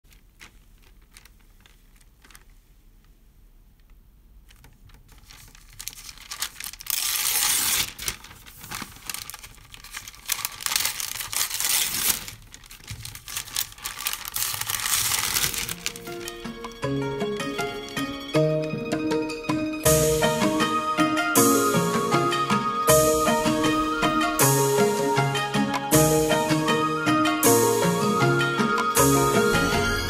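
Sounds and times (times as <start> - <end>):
crackling rustling noise: 0.0 - 20.7
music: 15.6 - 30.0.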